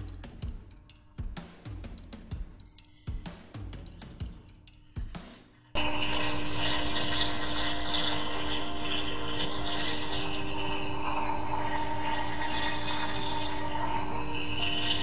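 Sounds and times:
bench grinder grinding steel: 5.8s - 15.0s.

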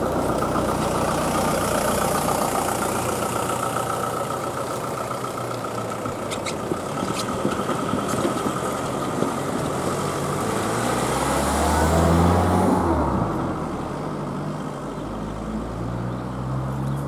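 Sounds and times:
car passing: 6.4s - 17.0s.

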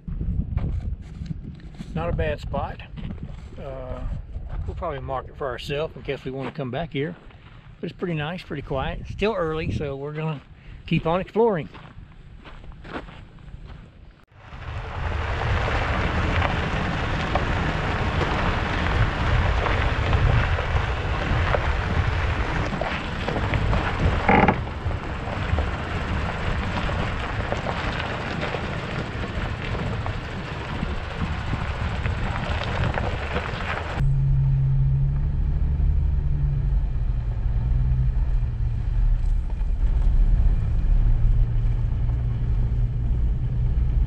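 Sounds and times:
wind buffeting microphone: 0.0s - 6.4s, 7.1s - 13.7s, 14.3s - 35.6s
tyres rolling on gravel road: 9.7s - 34.2s, 35.0s - 44.0s.

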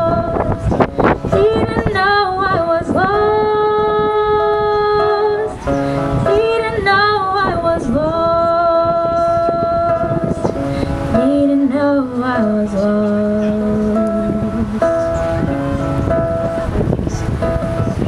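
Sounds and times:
woman singing: 0.0s - 0.7s, 1.3s - 10.5s, 11.1s - 14.9s
strummed acoustic guitar: 0.0s - 18.0s.

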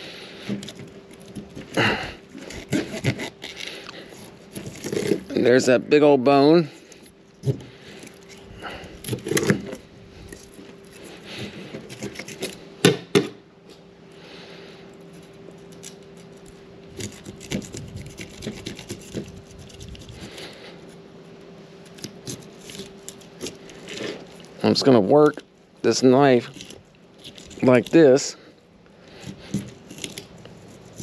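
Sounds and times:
faint steady hum: 0.0s - 31.0s
knife sawing and scraping fish scales: 0.1s - 5.8s, 6.6s - 12.7s, 14.3s - 21.1s, 21.8s - 24.9s, 29.0s - 31.0s.

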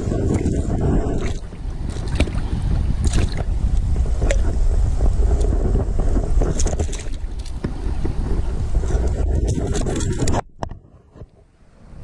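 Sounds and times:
small splashes: 0.0s - 3.5s, 6.5s - 8.0s
shallow river rushing: 0.0s - 10.4s
wind buffeting microphone: 0.0s - 12.0s.

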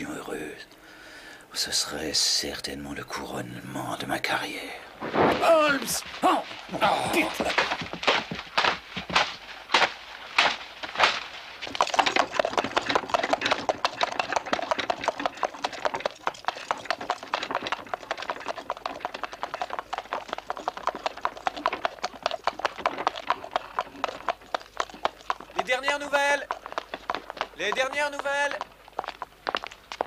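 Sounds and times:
short loud sounds: 5.0s - 7.7s
hooves clip-clopping on pavement: 5.4s - 30.0s.

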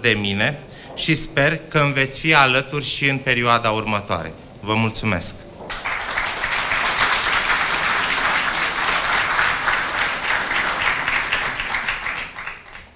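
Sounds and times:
audience applauding: 5.7s - 12.9s.

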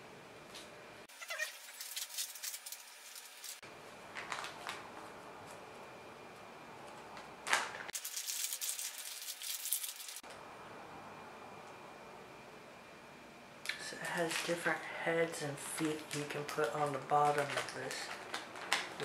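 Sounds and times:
plastic bag crinkling: 1.2s - 5.0s, 7.4s - 10.2s, 14.0s - 14.8s, 15.6s - 19.0s.

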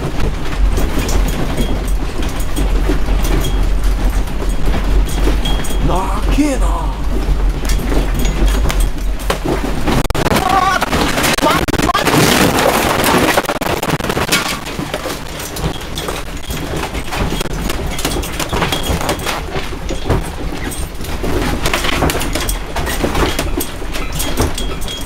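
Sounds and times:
earthquake low rumble: 0.0s - 16.4s
room contents rattling: 0.0s - 25.0s.

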